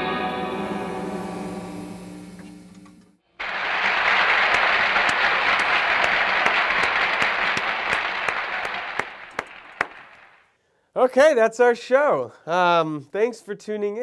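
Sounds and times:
single claps: 0:03.4 - 0:10.4
applause: 0:03.4 - 0:10.5.

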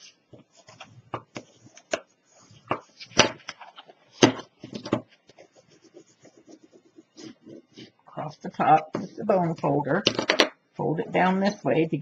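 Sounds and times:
light paper rustling: 0:00.0 - 0:08.0.

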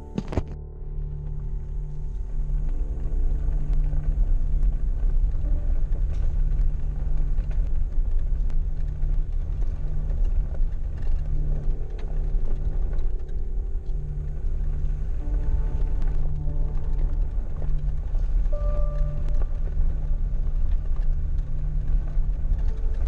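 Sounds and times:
engine and tyres rumbling: 0:00.0 - 0:23.0
sharp rattles and clicks: 0:00.0 - 0:23.0.

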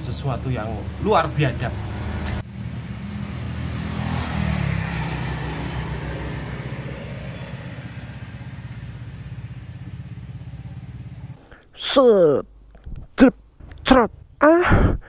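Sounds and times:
vehicle engine running: 0:05.5 - 0:11.4.

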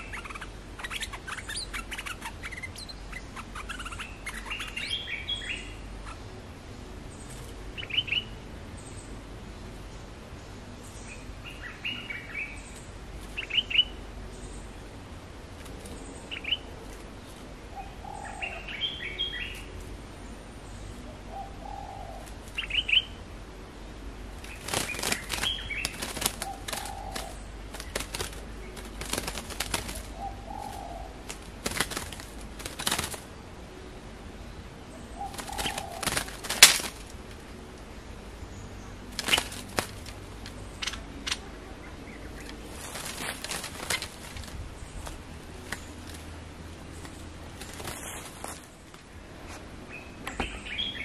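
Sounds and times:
bulbul calls: 0:00.0 - 0:06.3, 0:10.9 - 0:14.6, 0:17.7 - 0:19.8, 0:20.6 - 0:23.2, 0:24.4 - 0:33.8, 0:34.9 - 0:37.1
bird wings flapping: 0:24.4 - 0:33.3, 0:35.2 - 0:37.4, 0:39.1 - 0:41.4, 0:42.4 - 0:49.1.

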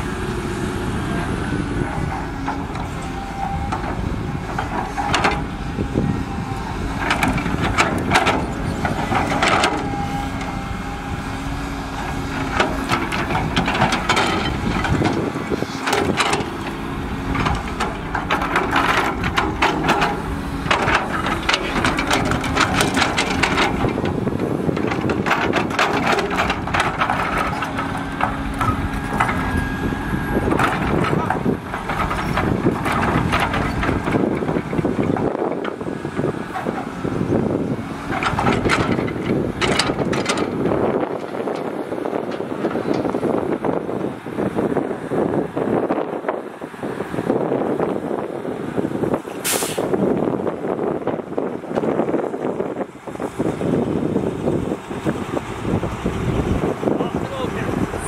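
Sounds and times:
diesel engines running: 0:00.0 - 0:58.0
soil tipping from truck: 0:01.9 - 0:46.0, 0:46.9 - 0:58.0
sharp knocks and clatters: 0:03.6 - 0:05.5, 0:07.0 - 0:10.0, 0:12.1 - 0:29.5, 0:30.5 - 0:35.8, 0:38.1 - 0:41.7.

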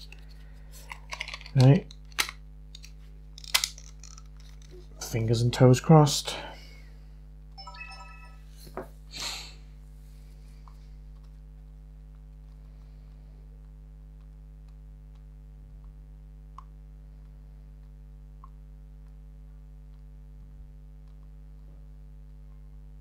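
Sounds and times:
electronic beep tones: 0:07.6 - 0:08.4.

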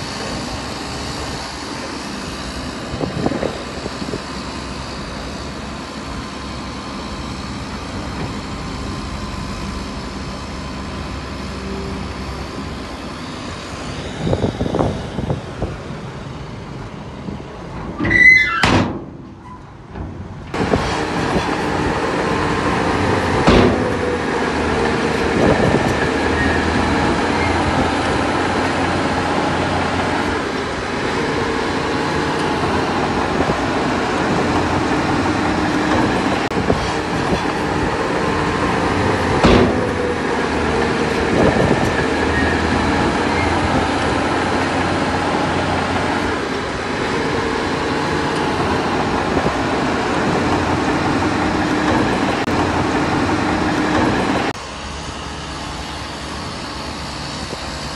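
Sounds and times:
diesel engines running: 0:00.0 - 0:57.9
short metallic squeal: 0:17.9 - 0:19.7, 0:26.3 - 0:27.7, 0:42.0 - 0:42.7.

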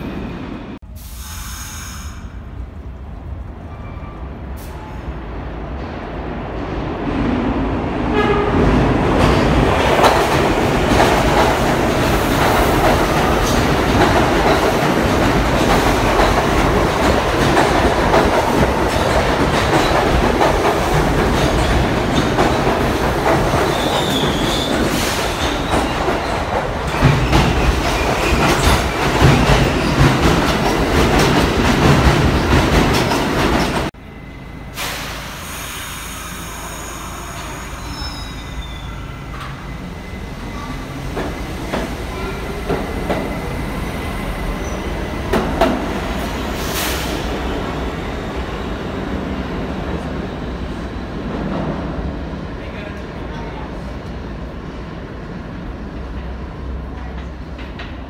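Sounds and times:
subway train rumbling past: 0:00.0 - 0:58.0
faint wheel squeals: 0:36.0 - 0:40.8.

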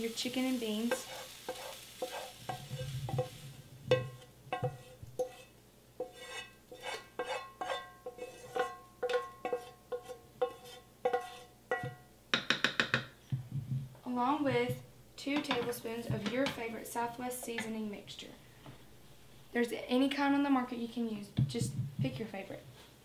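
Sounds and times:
utensil scraping metal frying pan: 0:00.1 - 0:12.0.

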